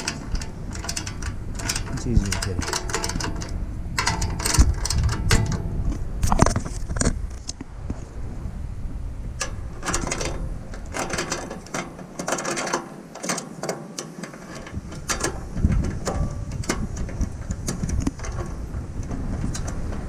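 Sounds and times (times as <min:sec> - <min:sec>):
ratcheting wrench clicking: 0:00.0 - 0:05.6.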